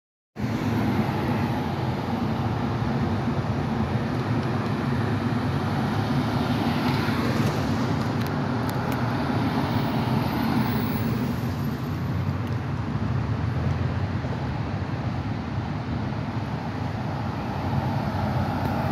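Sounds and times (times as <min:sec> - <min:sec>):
tyres hissing on road: 0:13.9 - 0:18.9.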